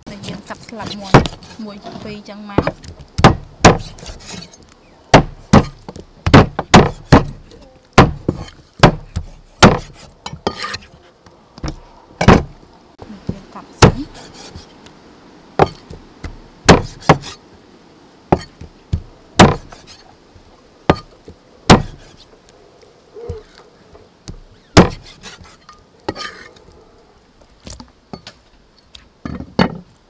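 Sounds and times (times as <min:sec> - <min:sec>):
cleaver chopping on wooden block: 0:02.6 - 0:04.1, 0:05.1 - 0:07.4, 0:08.0 - 0:10.0, 0:15.6 - 0:17.4, 0:18.3 - 0:19.8, 0:20.9 - 0:21.1, 0:21.7 - 0:22.1, 0:24.8 - 0:25.4.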